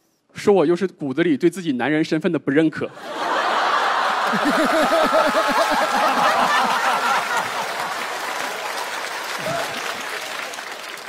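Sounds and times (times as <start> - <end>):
studio audience laughing: 2.9 - 8.9.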